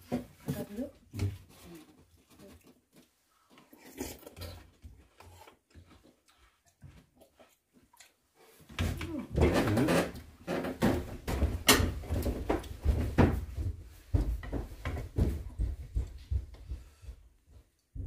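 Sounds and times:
footsteps on wooden boards: 9.4s - 18.0s.

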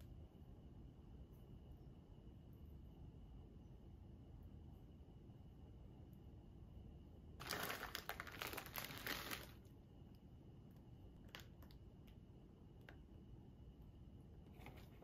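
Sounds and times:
plastic bag crinkling: 7.4s - 9.6s.

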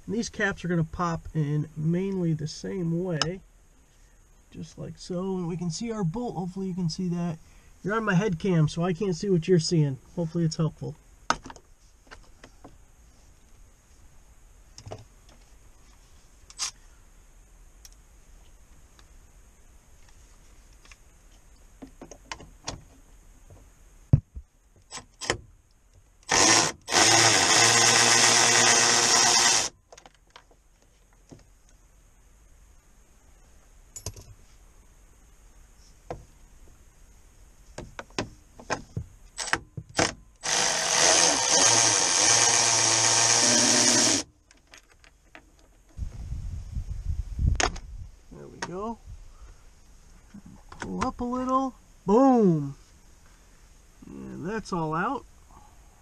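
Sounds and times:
power driver motor whir: 26.3s - 29.7s, 40.4s - 44.3s.

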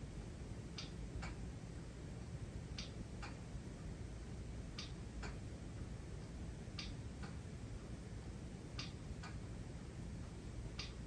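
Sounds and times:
low steady hum: 0.0s - 11.0s
light clicks ticking: 0.7s - 1.4s, 2.7s - 3.9s, 4.7s - 8.0s, 8.7s - 9.5s, 10.2s - 11.0s.

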